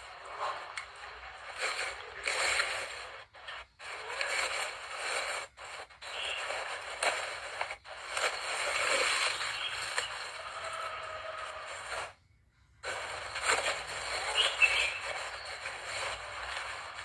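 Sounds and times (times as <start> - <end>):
dry leaves rustling and crackling: 3.8 - 12.1, 12.8 - 17.0.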